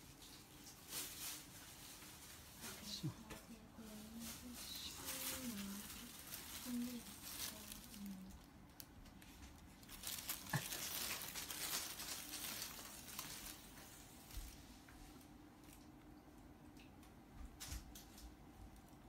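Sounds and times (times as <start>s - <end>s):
plastic bag crinkling: 0.0s - 14.6s.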